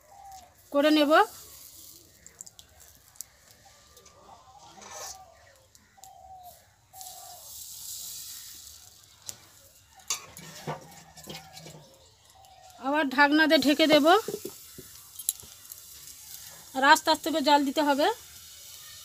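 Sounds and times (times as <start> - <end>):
batter hissing on hot mould: 0.1 - 4.1, 4.8 - 11.2, 13.5 - 19.0
chickens clucking: 3.5 - 7.4, 8.9 - 12.6.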